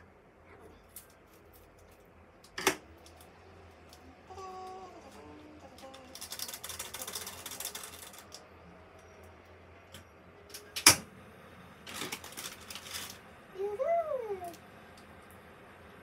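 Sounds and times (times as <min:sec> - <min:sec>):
plastic packet crinkling and tearing: 0:05.8 - 0:08.4, 0:11.8 - 0:13.3.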